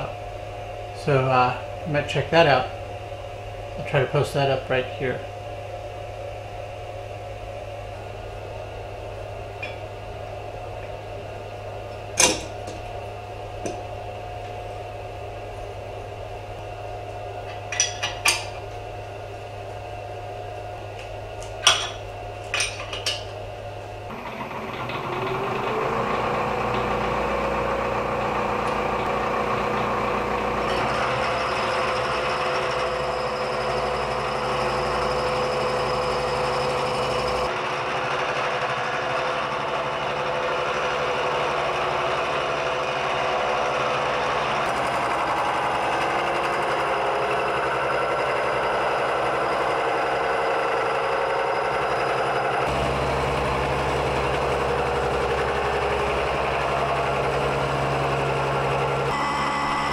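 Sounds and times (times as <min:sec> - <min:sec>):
milling machine cutting steel: 0:24.1 - 0:59.9.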